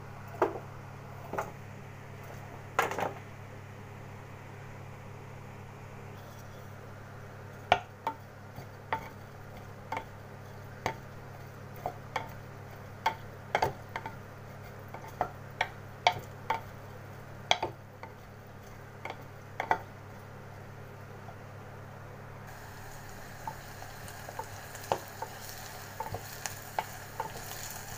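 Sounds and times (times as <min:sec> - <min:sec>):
steady low hum: 0:00.0 - 0:27.9
wooden spatula knocking clay pot: 0:13.0 - 0:14.2, 0:14.9 - 0:16.7, 0:17.4 - 0:18.2, 0:19.0 - 0:19.9.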